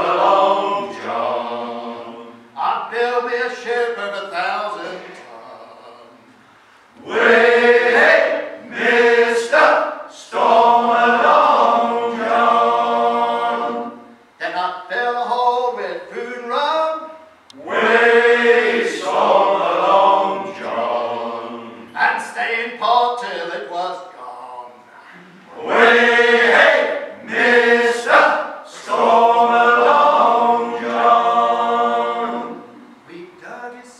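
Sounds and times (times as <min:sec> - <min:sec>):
male choir singing in harmony: 0:00.0 - 0:06.2, 0:07.0 - 0:14.2, 0:17.6 - 0:22.8, 0:25.5 - 0:33.0.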